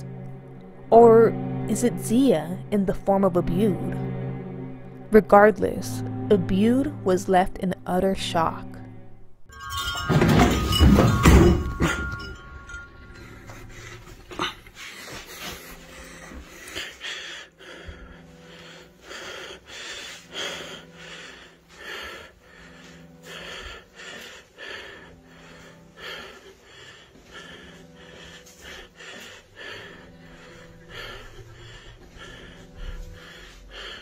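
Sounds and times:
low steady tone: 0:00.0 - 0:14.8.

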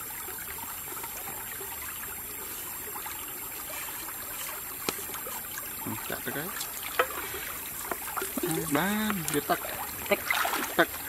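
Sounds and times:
stream babbling over rocks: 0:00.0 - 0:11.0.

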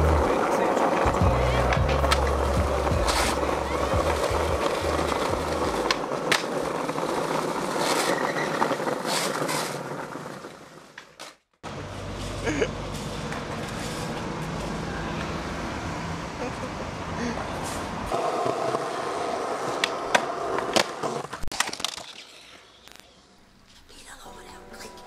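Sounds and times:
skateboard clicks: 0:00.0 - 0:11.4, 0:18.1 - 0:23.2
street traffic noise: 0:00.0 - 0:21.4
skateboard wheels rolling on asphalt: 0:00.0 - 0:23.7.

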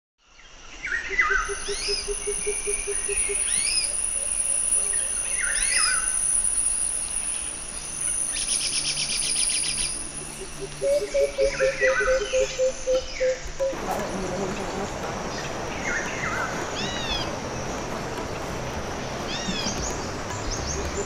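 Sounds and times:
high insect whine: 0:01.2 - 0:21.0
bird whistled call: 0:01.3 - 0:13.8
low rapid pulsing: 0:13.6 - 0:21.0.

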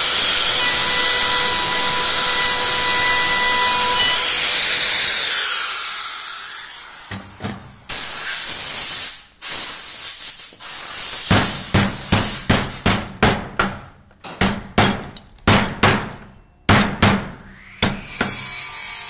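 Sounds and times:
power carving tool whining: 0:00.0 - 0:07.2
loud burst of hiss: 0:07.3 - 0:13.0.

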